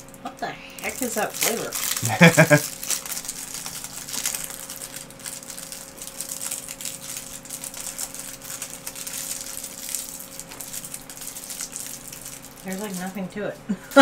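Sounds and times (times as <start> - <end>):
candy wrapper crinkling: 0.0 - 14.0
steady low hum: 0.0 - 14.0.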